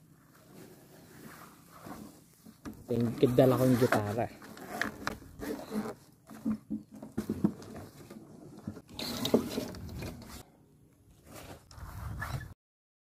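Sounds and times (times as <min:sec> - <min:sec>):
fabric rustling and scraping: 0:00.0 - 0:06.5, 0:11.1 - 0:12.6.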